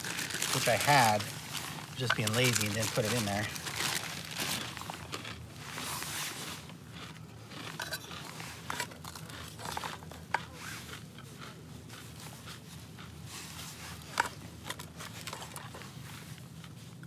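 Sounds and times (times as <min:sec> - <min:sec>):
plastic bag crinkling: 0:00.0 - 0:10.2.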